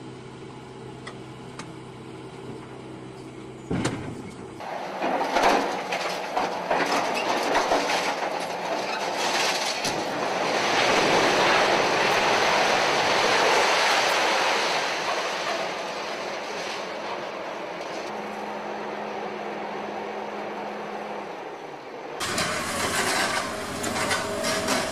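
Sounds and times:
debris clattering: 0:04.7 - 0:18.1, 0:22.2 - 0:24.9
concrete and masonry crashing down: 0:04.8 - 0:17.1, 0:22.2 - 0:24.9.

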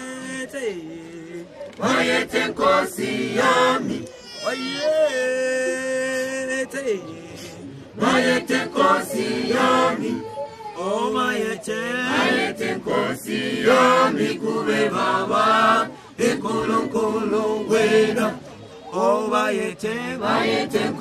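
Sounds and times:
choir singing a hymn: 0:01.3 - 0:04.1, 0:08.0 - 0:21.0.

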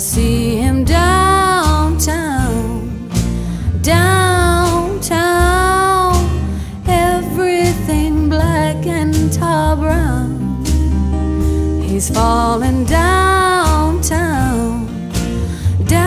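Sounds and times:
song with sung vocals: 0:00.0 - 0:10.7, 0:11.8 - 0:16.0
steady bass line: 0:00.0 - 0:16.0.

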